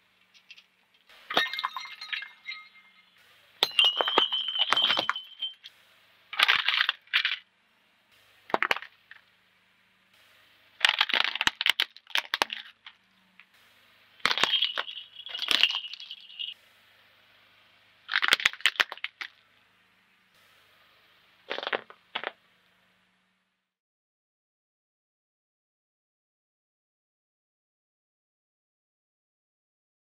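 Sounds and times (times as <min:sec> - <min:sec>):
tyre crushing ceramics: 0:01.3 - 0:03.0, 0:03.6 - 0:05.7, 0:06.4 - 0:07.4, 0:08.5 - 0:09.2, 0:10.8 - 0:13.0, 0:14.2 - 0:16.5, 0:18.1 - 0:19.4, 0:21.5 - 0:22.4.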